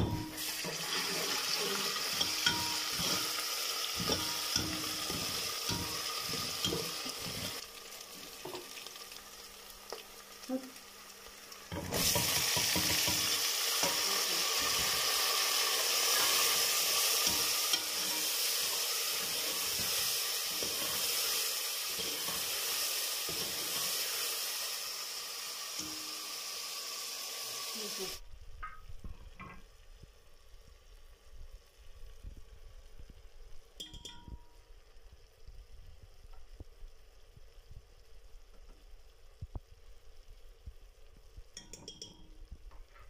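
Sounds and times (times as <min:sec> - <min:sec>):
ladle knocking and scraping pot: 0:00.0 - 0:07.6, 0:11.7 - 0:15.2, 0:16.1 - 0:21.2
tomatoes sizzling in oil: 0:00.0 - 0:43.0.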